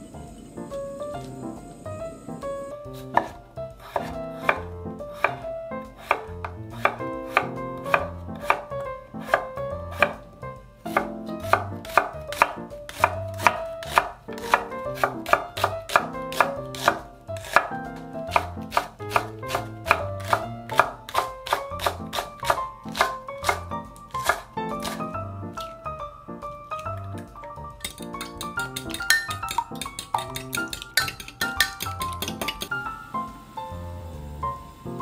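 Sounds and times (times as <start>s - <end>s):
knife chopping on wooden board: 3.0s - 10.2s, 10.9s - 25.1s.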